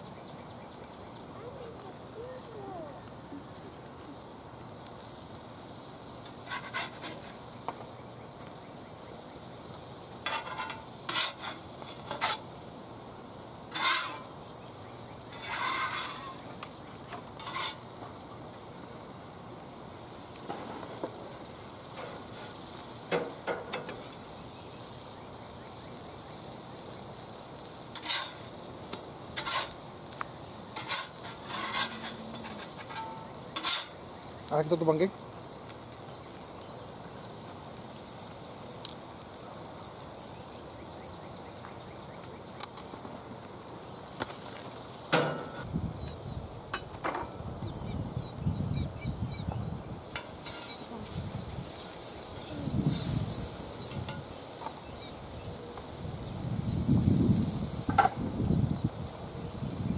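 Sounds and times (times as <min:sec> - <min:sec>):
pancakes sizzling on griddle: 0:00.0 - 0:59.9
metal spatula scraping and tapping: 0:06.2 - 0:07.9, 0:10.2 - 0:12.5, 0:13.7 - 0:14.3, 0:15.3 - 0:17.9, 0:23.1 - 0:24.1, 0:27.9 - 0:28.4, 0:29.3 - 0:29.8, 0:30.8 - 0:34.0, 0:50.1 - 0:50.8, 0:53.9 - 0:54.8.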